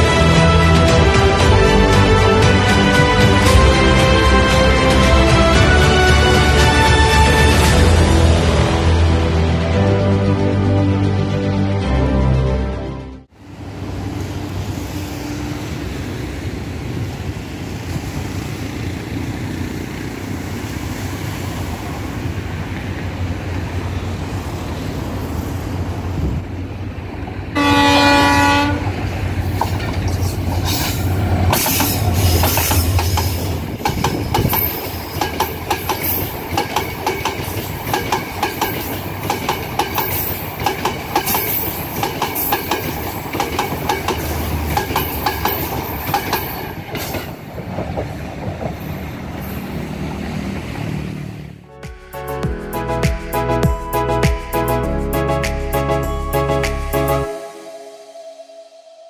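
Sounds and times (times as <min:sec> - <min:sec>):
train horn blast: 0:27.6 - 0:29.1
train wheels clickety-clack: 0:28.8 - 0:50.9.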